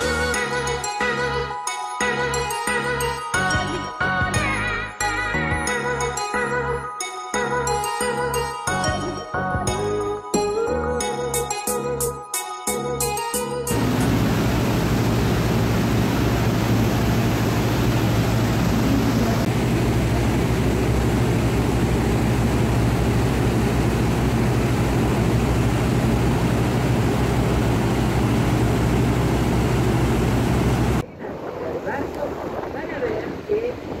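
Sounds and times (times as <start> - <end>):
boat engine droning: 13.7 - 31.0
rush of boat wake: 13.7 - 34.0.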